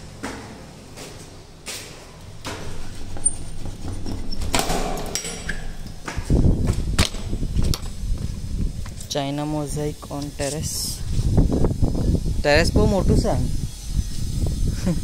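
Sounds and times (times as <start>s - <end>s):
footsteps on stairs: 0.0s - 9.0s
wind rumble on microphone: 2.8s - 15.0s
door bolt sliding with clatter: 2.9s - 6.0s.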